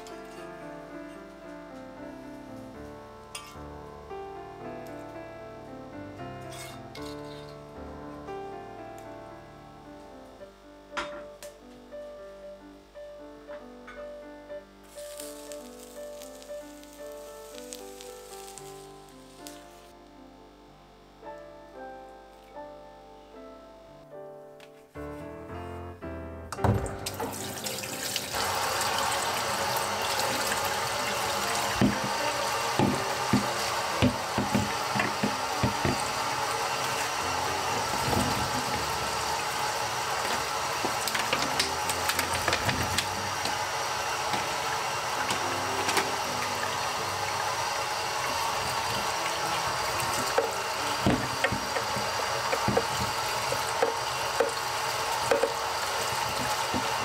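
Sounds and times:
water running from a tap: 26.7 - 57.0.

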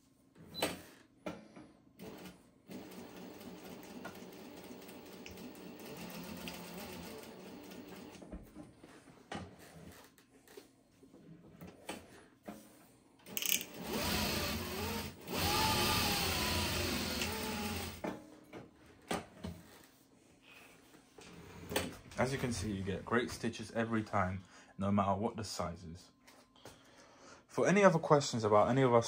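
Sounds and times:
sewing machine whirring: 2.0 - 8.2, 13.2 - 18.0.

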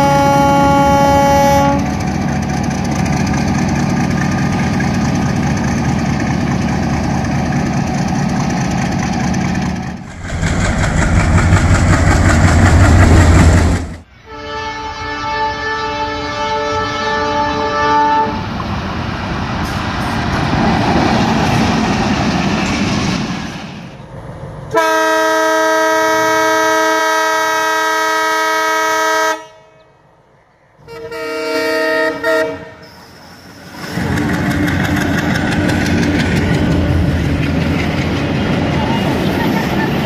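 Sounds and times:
locomotive horn blasts: 0.0 - 2.0, 14.2 - 18.5, 24.7 - 29.8, 30.8 - 32.9
train wheels rumbling on rails: 0.0 - 14.1, 18.3 - 27.0, 32.1 - 40.0.

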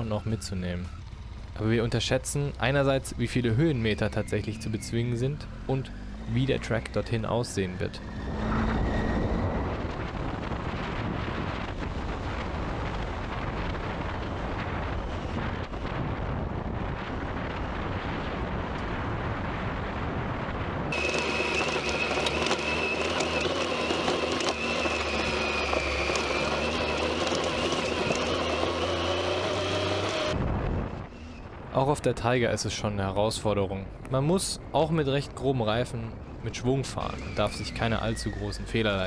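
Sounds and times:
wind noise: 6.2 - 39.0
motorcycle engine running: 20.9 - 30.4
tyres on gravel: 20.9 - 30.4.

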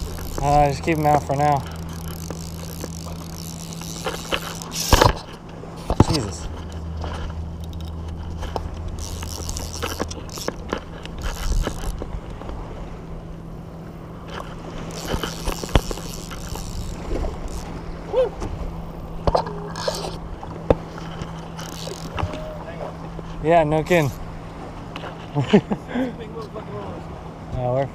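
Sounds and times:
handling noise on camera: 0.0 - 12.6
steady low hum: 0.0 - 27.5.

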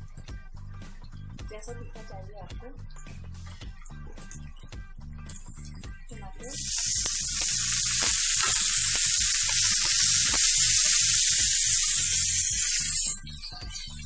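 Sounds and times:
tomatoes sizzling in oil: 6.5 - 14.0.

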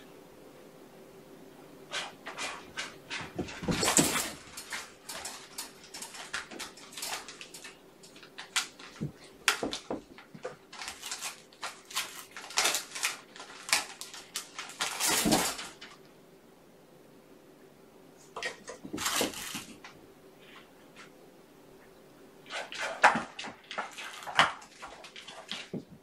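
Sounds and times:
rustling: 1.8 - 16.1, 18.2 - 21.2, 22.4 - 26.0
kitten claws on wire and plastic: 1.9 - 16.0, 22.5 - 25.9.

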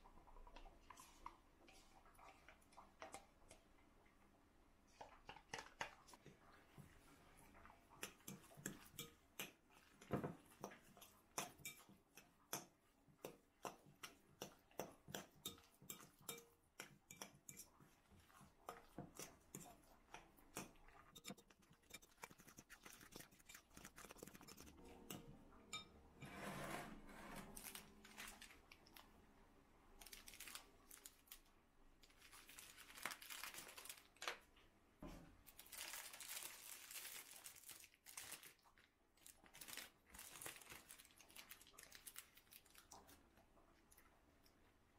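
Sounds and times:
plastic bag rustling and crinkling: 27.3 - 29.1, 30.0 - 34.3, 35.4 - 42.9.

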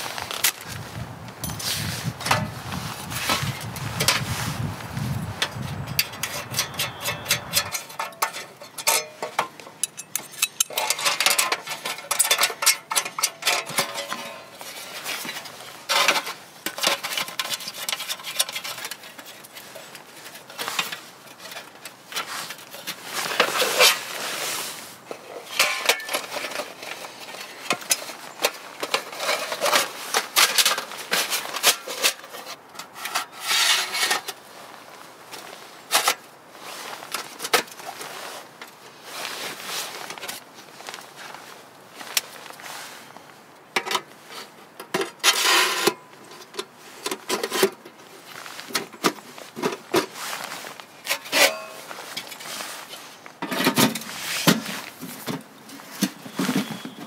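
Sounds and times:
metal plates clinking and scraping: 5.4 - 24.3, 25.1 - 34.4, 44.8 - 47.8, 51.0 - 57.0.

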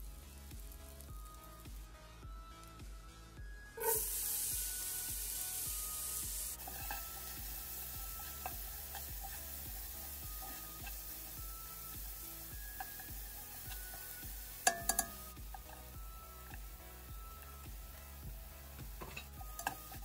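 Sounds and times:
onion sizzling in butter: 0.0 - 1.9, 3.8 - 20.0
spatula clicking against pot: 13.7 - 15.7, 19.0 - 20.0.

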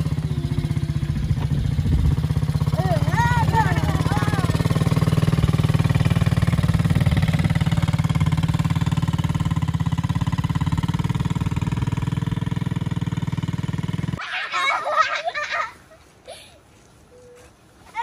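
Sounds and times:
small engine idling: 0.0 - 14.2.

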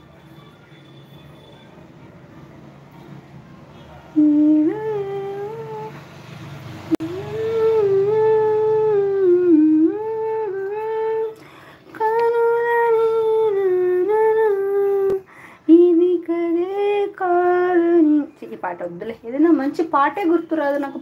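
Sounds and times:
woman humming: 4.2 - 6.0, 7.0 - 11.4.

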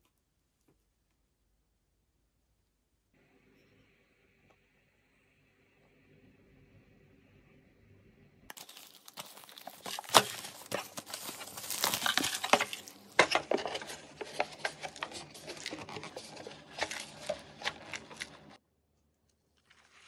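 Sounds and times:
crinkly material rustling: 8.5 - 18.6, 19.2 - 20.0.

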